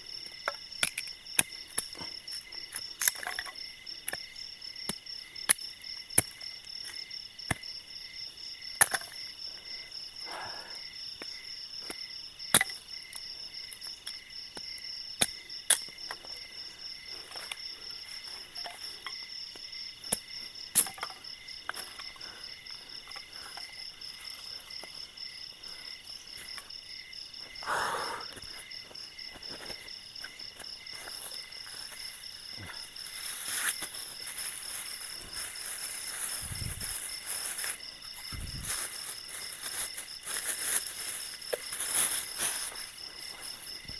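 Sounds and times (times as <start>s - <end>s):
insects chirring: 0.0s - 43.9s
rustle of movement: 29.3s - 43.9s.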